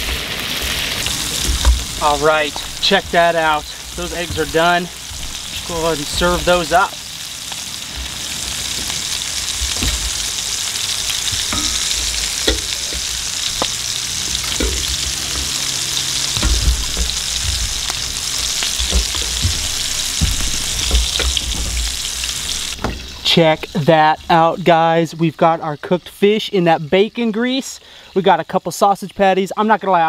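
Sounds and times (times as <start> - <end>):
wooden spoon scraping a pan: 0.0 - 22.8
sausage sizzling in a skillet: 0.0 - 25.4.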